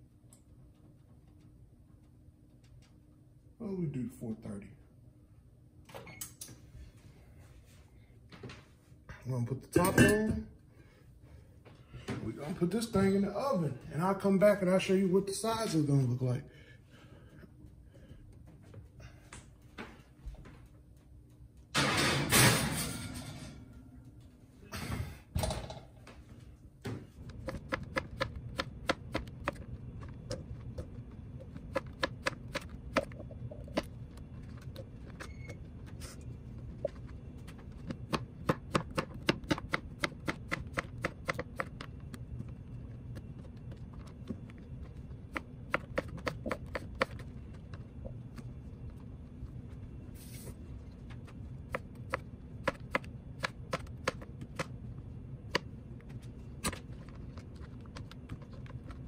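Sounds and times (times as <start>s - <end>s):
steady low hum: 0.0s - 59.0s
knife chopping on cutting board: 27.4s - 29.6s, 37.9s - 41.8s.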